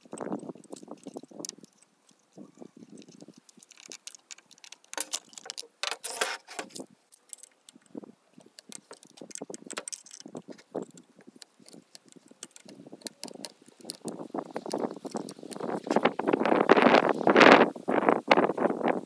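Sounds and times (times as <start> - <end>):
metal parts rattling: 0.0 - 15.8
metal parts clinking and scraping: 0.0 - 16.0.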